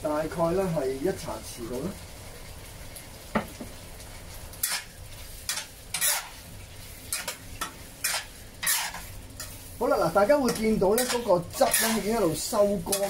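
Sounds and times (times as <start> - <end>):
low sizzle: 0.0 - 13.0
metal spatula scraping a wok: 4.6 - 13.0.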